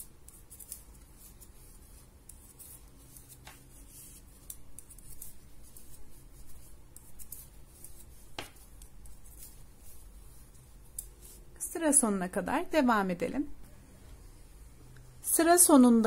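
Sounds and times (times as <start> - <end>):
yarn rubbing: 0.0 - 12.2.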